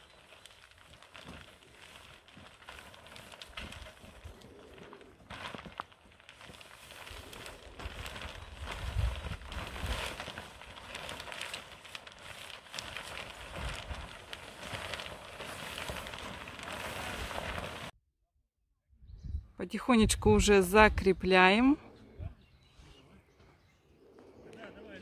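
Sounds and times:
plastic film rustling and crackling: 0.0 - 18.0
wind buffeting microphone: 7.2 - 10.1, 19.0 - 22.8.

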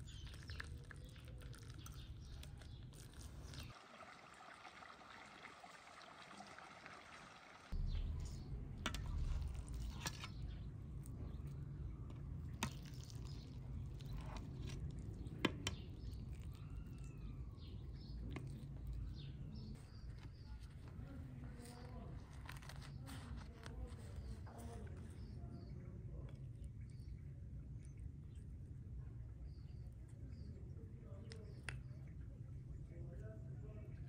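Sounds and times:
steady low rumble: 7.7 - 22.2
bird chirping: 7.8 - 21.9.

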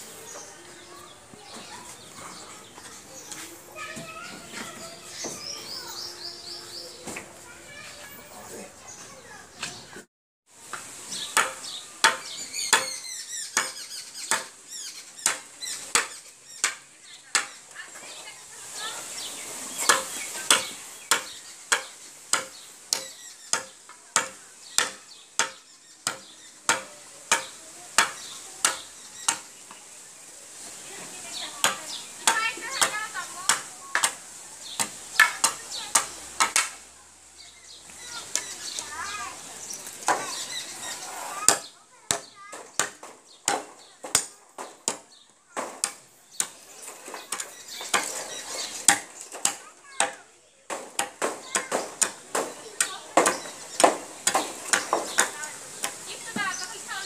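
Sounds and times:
blade chopping bamboo: 10.7 - 13.0, 13.6 - 14.6, 15.2 - 17.6, 19.8 - 29.5, 31.6 - 34.2, 34.8 - 36.8, 41.4 - 56.0.

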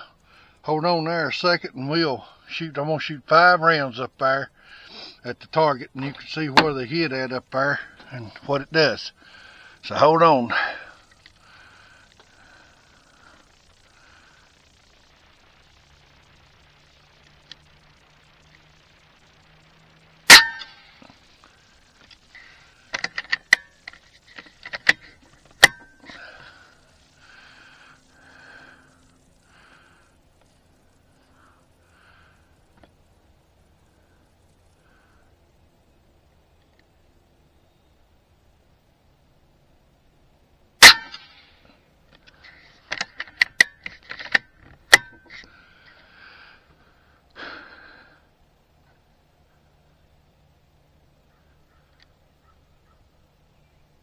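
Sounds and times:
loud metallic snap: 20.3 - 21.0, 24.4 - 26.2, 40.8 - 41.5, 42.9 - 45.4
metallic clicks of rifle action: 22.0 - 26.2, 42.1 - 45.6.

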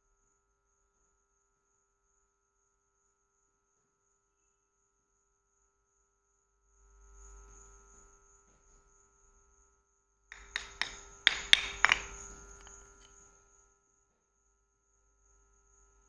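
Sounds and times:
slate blocks clacking together: 10.4 - 13.2.

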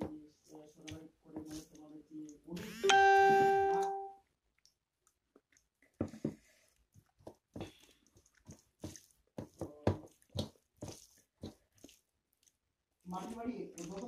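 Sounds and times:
chewing and mouth smacks: 4.2 - 6.0, 6.7 - 9.3, 10.0 - 12.8
fingers squishing rice on plate: 4.5 - 12.7.

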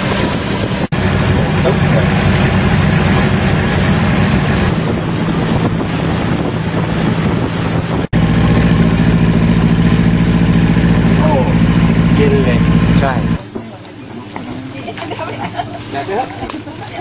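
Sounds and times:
wind and water hiss: 0.0 - 11.1
boat engine running: 0.0 - 17.0.

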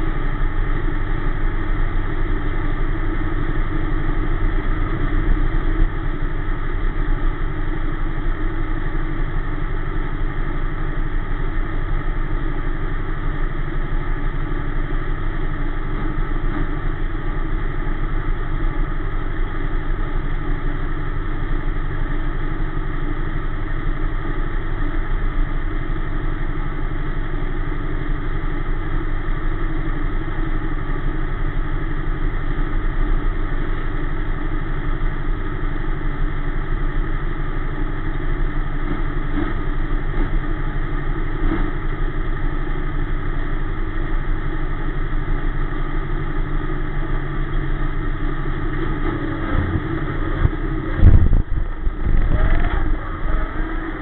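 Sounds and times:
race car engine idling: 0.0 - 54.0.

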